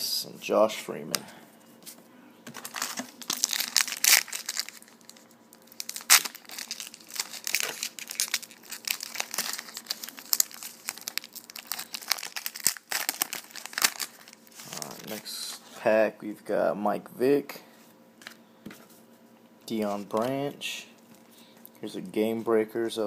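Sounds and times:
foil wrapper crinkling and tearing: 0:02.6 - 0:15.2.

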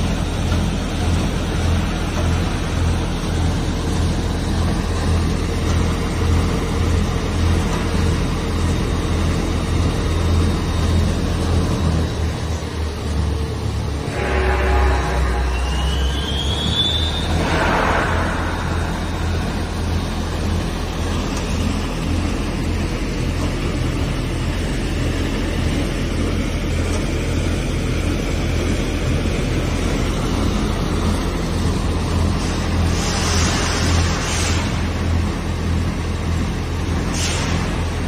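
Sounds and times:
lathe mechanical hum: 0:00.0 - 0:38.0
short hissing bursts: 0:32.9 - 0:34.8.

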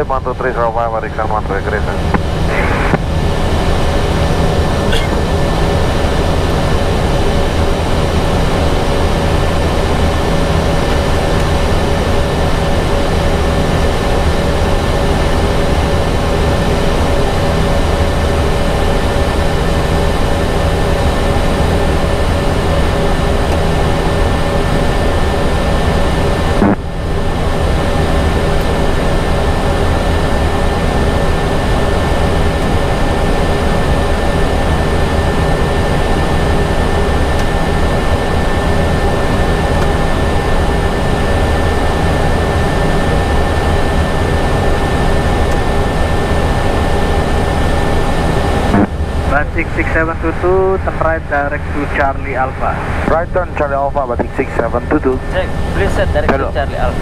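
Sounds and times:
low hum: 0:00.0 - 0:57.0
steady rush of air: 0:49.9 - 0:53.1.

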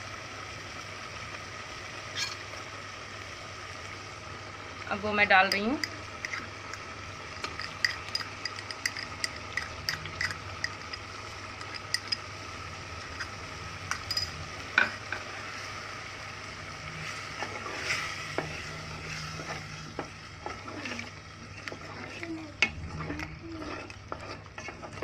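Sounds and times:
food sizzling in a pot: 0:00.0 - 0:25.0
spoon tapping against pot: 0:07.4 - 0:12.3
wooden spoon scraping and stirring: 0:16.9 - 0:25.0.

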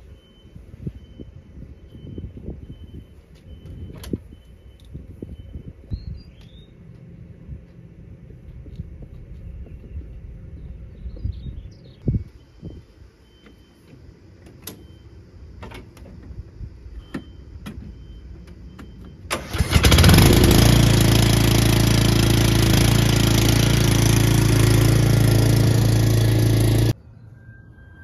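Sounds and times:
riding mower engine starting and running: 0:18.8 - 0:27.0.

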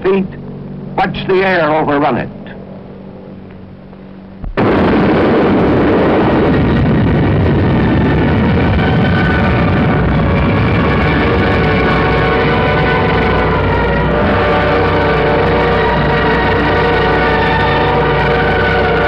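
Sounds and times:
low hum: 0:00.0 - 0:19.0
explosion boom and rumble: 0:04.4 - 0:19.0.

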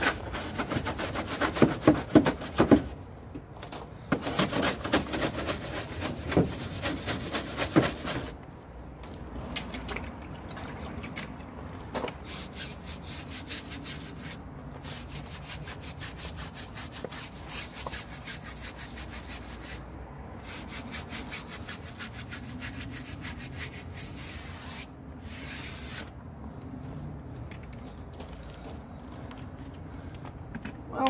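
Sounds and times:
stiff brush scrubbing a tyre: 0:00.0 - 0:03.0, 0:04.1 - 0:08.4, 0:12.0 - 0:26.2.

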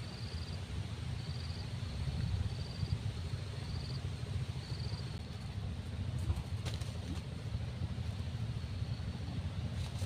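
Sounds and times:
cricket trilling: 0:00.0 - 0:05.4.

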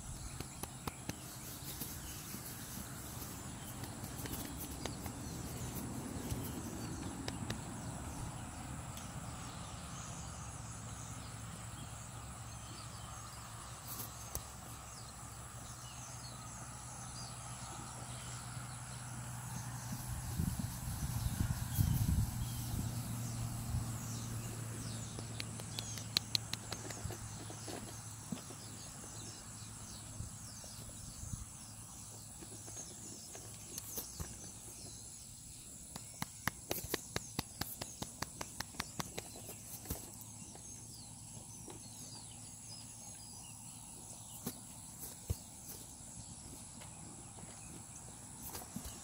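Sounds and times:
birds chirping: 0:00.0 - 0:49.0
sharp clicks: 0:25.1 - 0:27.2.

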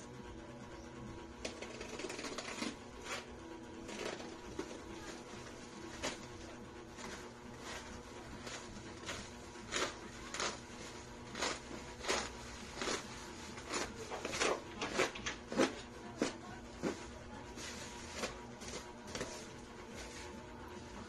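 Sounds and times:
knife cutting plastic and tape: 0:08.4 - 0:17.0.

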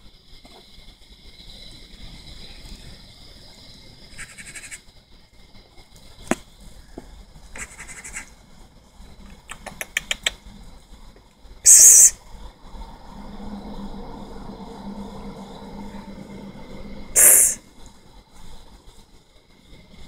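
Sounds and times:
raccoon chittering: 0:04.1 - 0:04.9, 0:07.5 - 0:08.4, 0:09.2 - 0:10.6, 0:11.6 - 0:12.2, 0:17.2 - 0:17.6
quick clicks: 0:09.3 - 0:10.4
high-pitched hum: 0:12.9 - 0:17.7.

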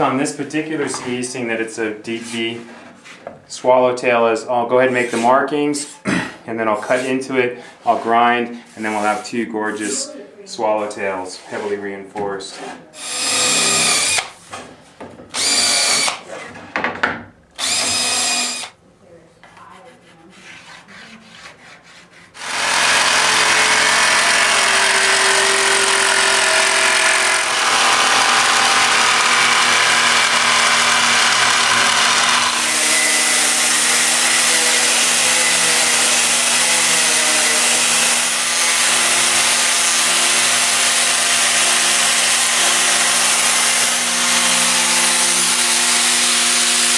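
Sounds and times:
jigsaw cutting fiberglass: 0:13.0 - 0:14.3, 0:15.4 - 0:16.3, 0:17.6 - 0:18.8, 0:22.4 - 0:46.9
disc grinder grinding: 0:22.4 - 0:34.4.

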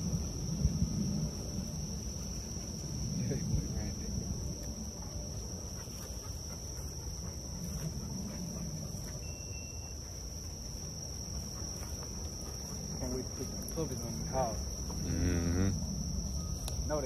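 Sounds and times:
high-pitched insect chorus: 0:00.0 - 0:17.0
thin whistle: 0:09.2 - 0:10.0.

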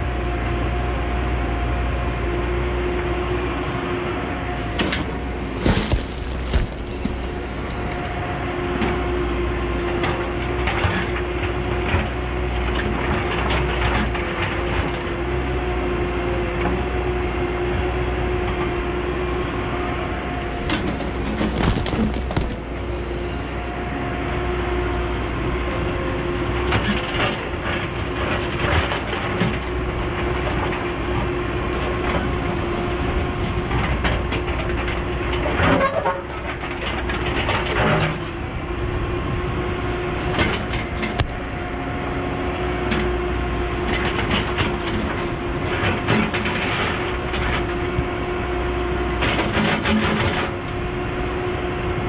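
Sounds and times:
excavator engine droning with whine: 0:00.0 - 0:52.0.

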